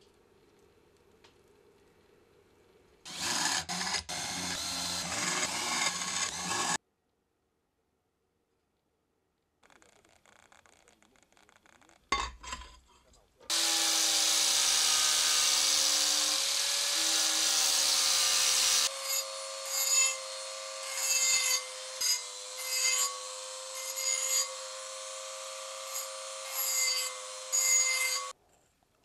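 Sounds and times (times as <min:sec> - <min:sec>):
angle grinder grinding steel: 0:03.1 - 0:06.8, 0:13.5 - 0:28.4
rotary tool grinding: 0:03.1 - 0:06.8, 0:13.5 - 0:28.4.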